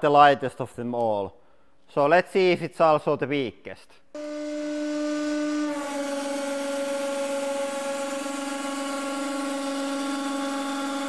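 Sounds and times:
hydraulic hiss: 4.2s - 11.0s
hydraulic press humming: 4.2s - 11.0s.

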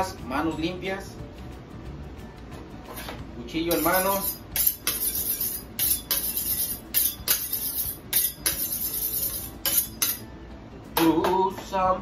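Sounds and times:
knife scraping on sharpening steel: 3.7s - 10.3s.

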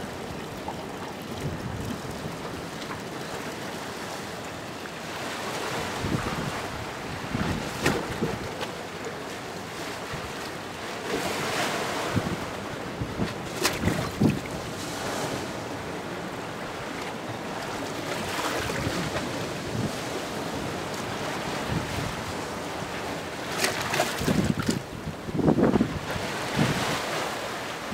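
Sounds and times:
surf washing over rocks: 0.0s - 27.9s
water splashes: 13.4s - 19.3s, 23.4s - 24.9s.

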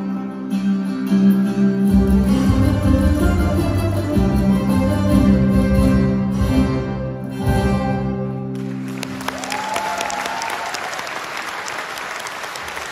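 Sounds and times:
folk instrument ensemble chord: 1.5s - 8.9s
audience applause: 8.6s - 12.9s.

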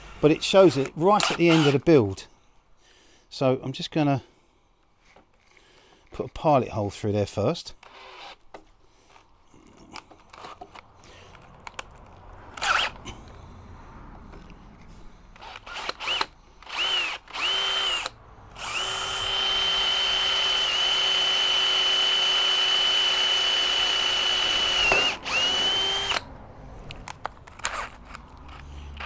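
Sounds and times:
power drill whining: 0.8s - 1.9s, 7.8s - 8.4s, 12.5s - 13.0s, 15.4s - 26.3s.

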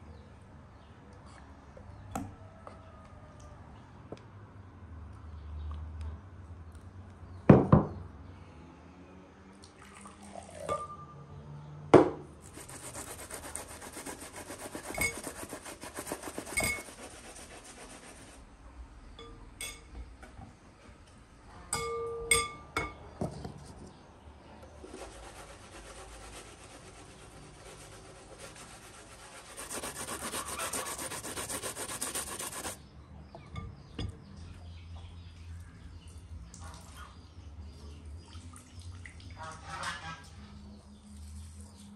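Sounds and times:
food grated on metal grater: 12.4s - 18.4s, 24.9s - 32.8s.

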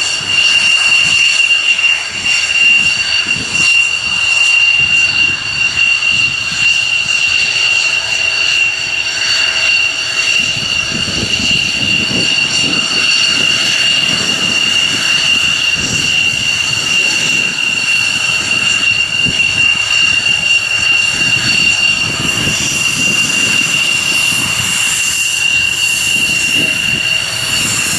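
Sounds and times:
jet turbine whine: 0.0s - 27.9s
low fluttering rumble: 10.3s - 27.9s.

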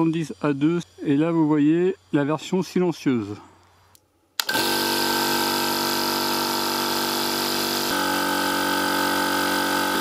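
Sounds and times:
air compressor running: 4.4s - 10.0s.

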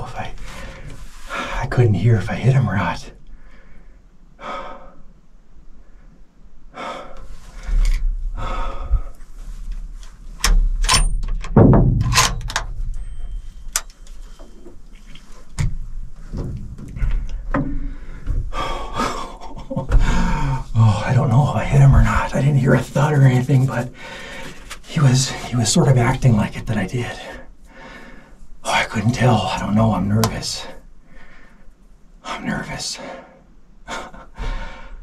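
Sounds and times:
man breathing heavily: 0.4s - 1.6s, 3.3s - 5.2s, 5.8s - 9.8s, 16.3s - 21.2s, 23.9s - 24.7s, 27.7s - 28.4s, 31.0s - 31.7s, 33.0s - 35.0s
rifle handling clicks and knocks: 9.7s - 14.8s.

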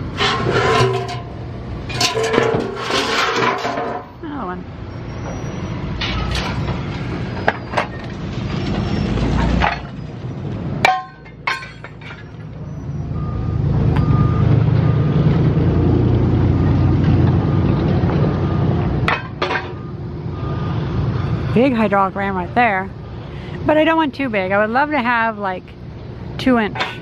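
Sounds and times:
metal clanks: 0.0s - 4.2s, 9.3s - 10.0s, 10.8s - 12.6s, 19.0s - 19.9s, 26.7s - 27.0s
reversing alarm beeping: 4.8s - 10.2s, 12.2s - 15.2s, 17.4s - 18.9s, 19.6s - 21.1s.

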